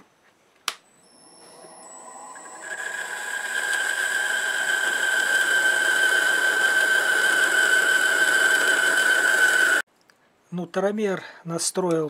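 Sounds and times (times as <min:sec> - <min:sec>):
high steady whine: 0:00.7 - 0:09.8
lathe boring metal: 0:01.0 - 0:09.8.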